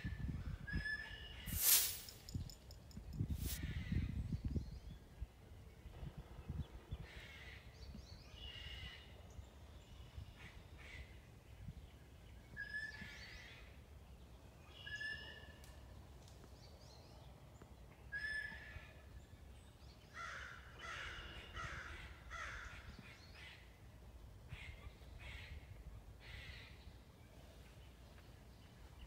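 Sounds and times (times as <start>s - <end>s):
crows cawing: 20.2s - 22.8s.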